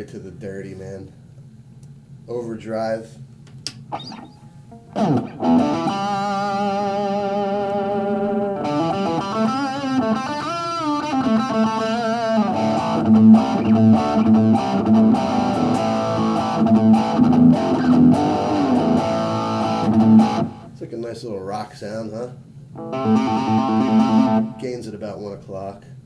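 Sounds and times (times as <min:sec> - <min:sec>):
electric guitar with gain: 0:03.9 - 0:20.7, 0:22.7 - 0:24.9.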